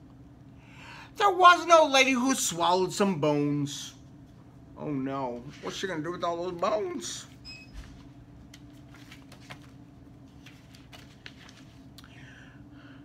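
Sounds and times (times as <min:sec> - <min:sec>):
steady low hum: 0:00.0 - 0:13.0
rustling pages of a book: 0:07.8 - 0:12.0.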